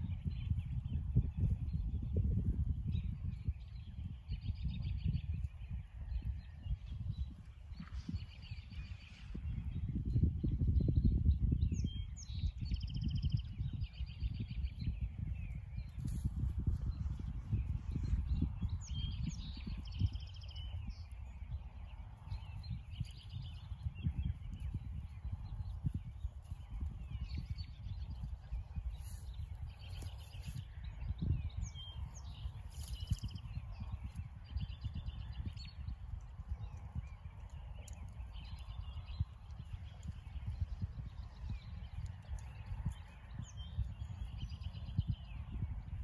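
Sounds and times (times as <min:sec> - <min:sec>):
wind rumbling on microphone: 0:00.0 - 0:46.0
small birds chirping: 0:11.4 - 0:46.0
songbirds trilling: 0:18.4 - 0:45.3.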